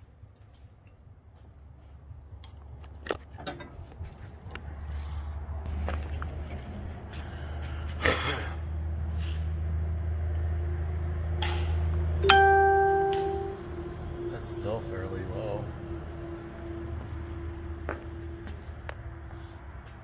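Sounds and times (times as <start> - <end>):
low steady hum: 10.7 - 18.3.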